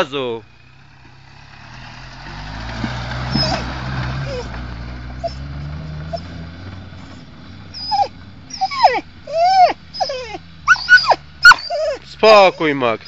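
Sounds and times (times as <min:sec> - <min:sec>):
faint engine running: 0:00.0 - 0:13.0
dog whining and yelping: 0:03.3 - 0:04.6, 0:05.2 - 0:06.4, 0:07.0 - 0:12.8.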